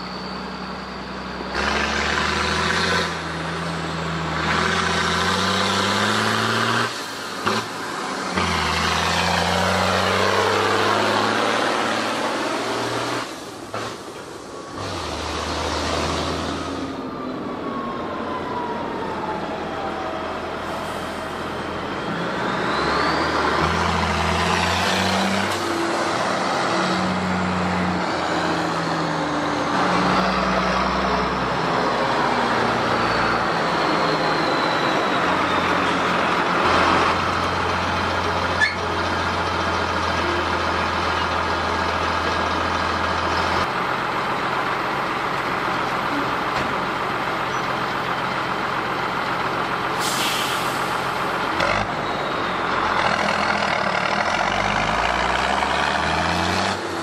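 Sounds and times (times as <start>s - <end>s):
tractor diesel engine running: 25.7s - 55.9s
short hiss: 50.0s - 50.9s.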